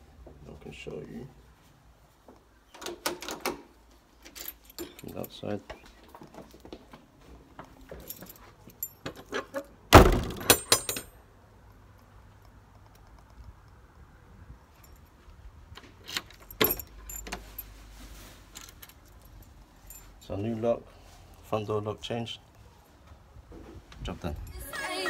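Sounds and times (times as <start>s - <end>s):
keys jangling and clicking: 4.2s - 5.4s, 7.7s - 9.7s, 10.3s - 11.1s, 16.0s - 17.8s, 18.5s - 20.4s
door slamming shut: 9.9s - 11.0s.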